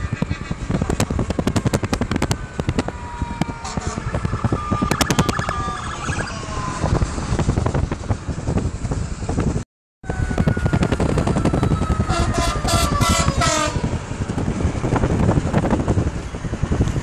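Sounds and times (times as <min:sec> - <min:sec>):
fire engine sirens: 0:00.0 - 0:08.4, 0:10.0 - 0:16.9
road and tyre noise: 0:00.0 - 0:17.0
short horn blasts: 0:12.1 - 0:13.9.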